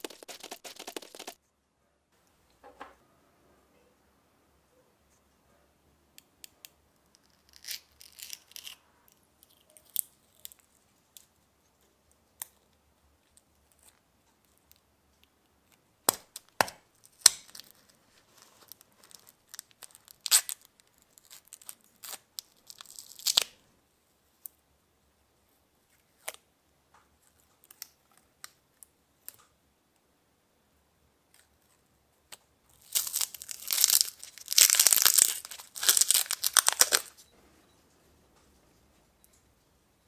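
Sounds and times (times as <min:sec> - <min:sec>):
paper crumpling: 0:00.0 - 0:01.4, 0:32.8 - 0:37.2.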